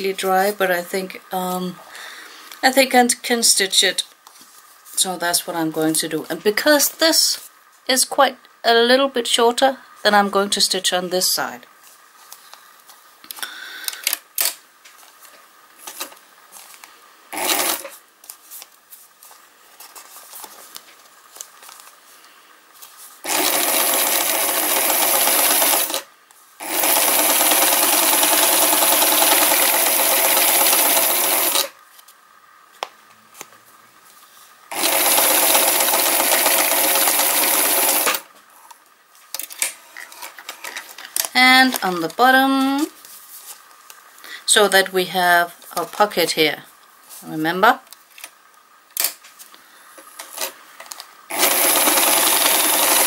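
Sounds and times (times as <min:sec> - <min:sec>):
sewing machine stitching paper: 0:17.4 - 0:18.0, 0:23.2 - 0:26.0, 0:26.6 - 0:31.7, 0:34.7 - 0:38.2, 0:51.3 - 0:53.0.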